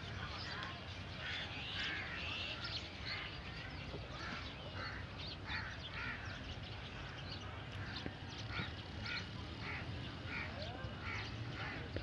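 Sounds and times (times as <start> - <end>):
crows cawing: 4.1 - 6.4, 7.0 - 12.0.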